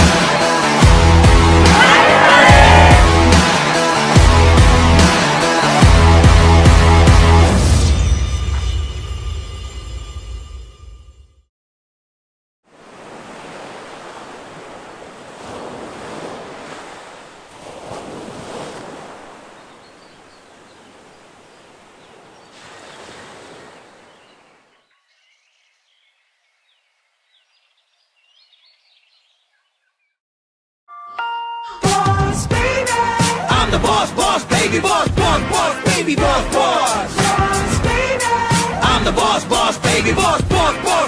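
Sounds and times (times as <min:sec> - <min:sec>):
music: 0:00.0 - 0:11.5, 0:30.9 - 0:41.0.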